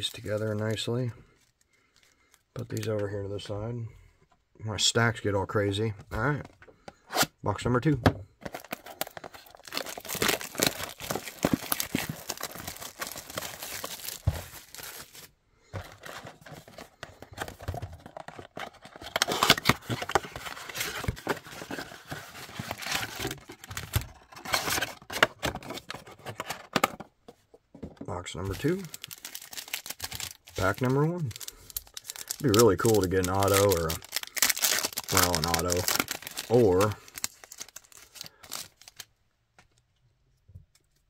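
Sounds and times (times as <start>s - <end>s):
wrapper crinkling and tearing: 8.4s - 15.3s, 16.0s - 25.8s, 28.5s - 39.1s.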